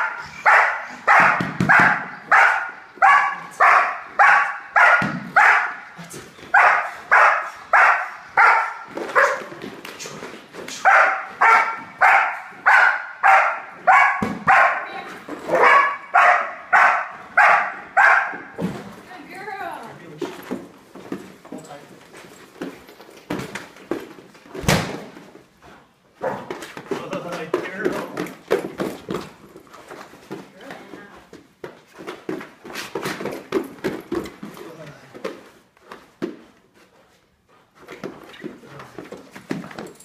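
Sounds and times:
dog barking: 0.0 - 5.8, 6.5 - 9.5, 10.8 - 14.9, 15.5 - 18.5, 26.2 - 26.5.

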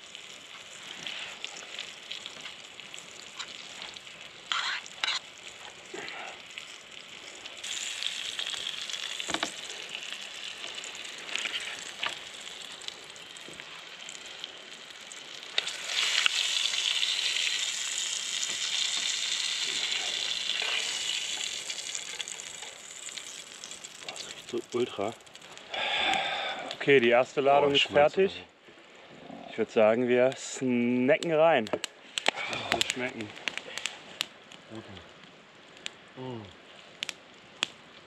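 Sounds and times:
food sizzling in oil: 0.0 - 26.3.

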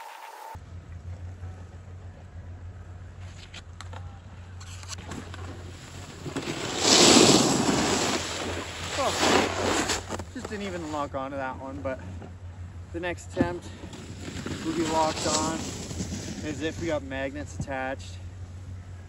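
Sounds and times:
snowboard skidding on snow: 5.1 - 11.1, 13.4 - 17.2.

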